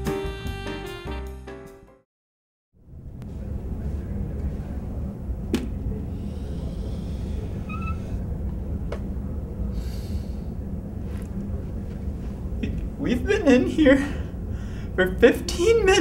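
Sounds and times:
steady low hum: 0:02.8 - 0:16.0
marker squeaking on whiteboard: 0:07.6 - 0:08.2.

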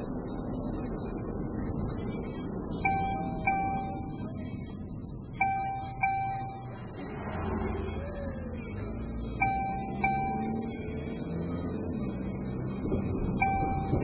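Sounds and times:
car rumbling to a stop: 0:00.0 - 0:14.0
electronic chime dinging: 0:02.8 - 0:04.3, 0:05.4 - 0:06.9, 0:09.4 - 0:10.9, 0:13.4 - 0:14.0.

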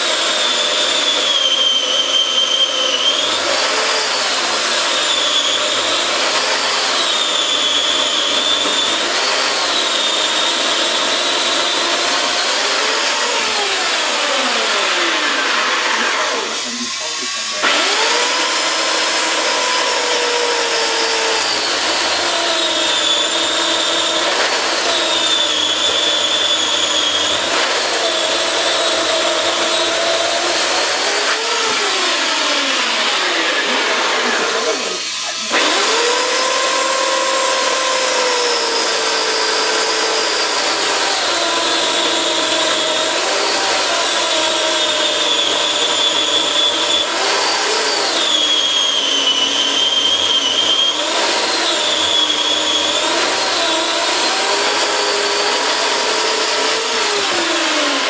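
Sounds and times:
electric chainsaw cutting log: 0:00.0 - 0:58.0.

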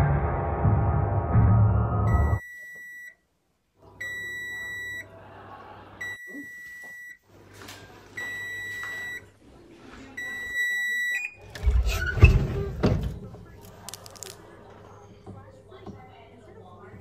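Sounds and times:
oven timer beeping: 0:04.0 - 0:05.1, 0:08.2 - 0:09.2, 0:10.2 - 0:11.4.

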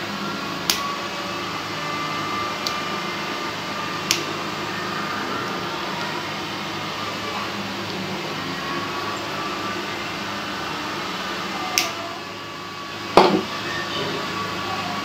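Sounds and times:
steady hum: 0:00.0 - 0:15.0.

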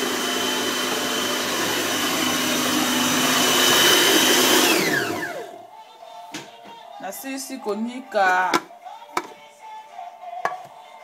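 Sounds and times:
food processor motor whine: 0:00.0 - 0:05.6.

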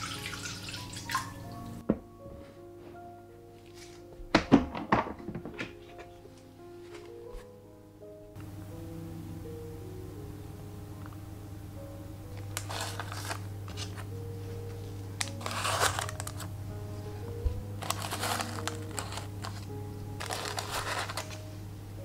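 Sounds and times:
background music: 0:00.0 - 0:22.0
parchment paper rustling: 0:12.4 - 0:16.5, 0:17.1 - 0:21.5.

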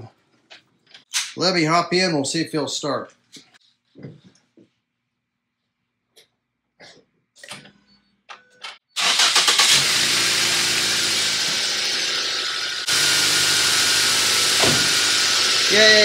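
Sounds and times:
car engine cranking and running: 0:09.0 - 0:16.0.

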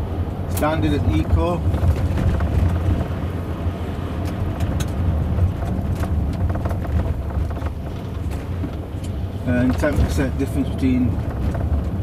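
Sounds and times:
car road rumble: 0:00.0 - 0:12.0
trim rattle knocks: 0:04.6 - 0:12.0.

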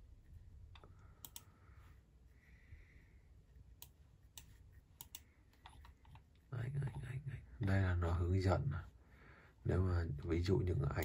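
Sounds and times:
computer mouse clicking: 0:00.7 - 0:01.5, 0:03.8 - 0:07.0.

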